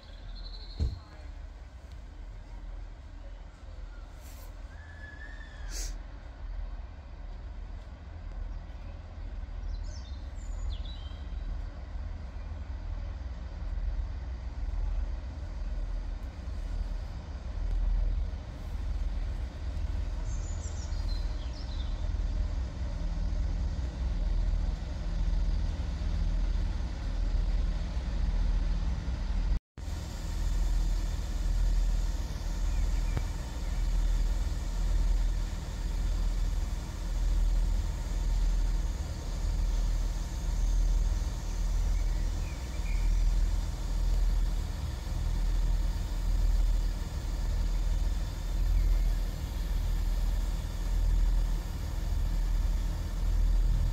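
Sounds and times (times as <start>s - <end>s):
diesel engines idling: 0.0s - 53.9s.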